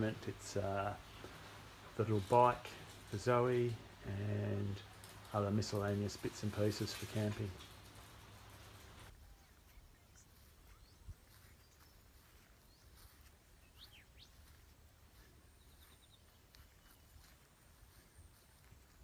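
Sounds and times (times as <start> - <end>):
faint bird chirps: 9.1 - 18.8.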